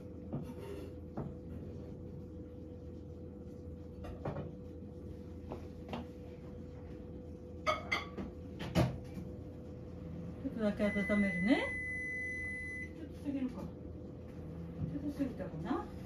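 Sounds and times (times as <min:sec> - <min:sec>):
faint hum: 0:00.0 - 0:16.0
dishes clicking and knocking: 0:07.6 - 0:09.3.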